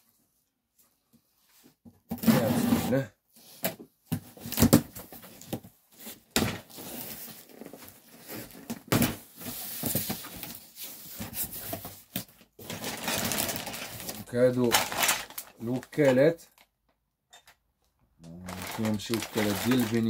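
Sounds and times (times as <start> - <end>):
plastic packaging crinkling: 12.6 - 16.4, 18.3 - 20.0.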